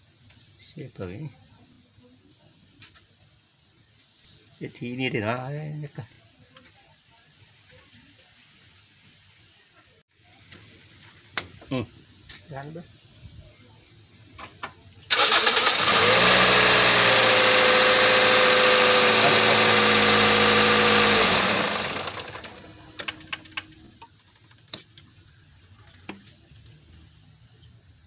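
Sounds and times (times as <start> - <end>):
starter motor cranking: 15.1 - 23.9
car engine idling: 15.1 - 24.0.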